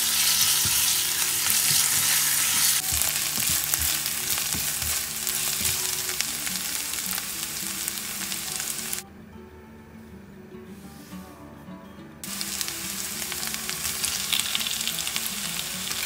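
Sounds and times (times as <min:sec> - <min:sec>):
food sizzling in hot oil: 0:00.0 - 0:09.0, 0:12.2 - 0:16.0.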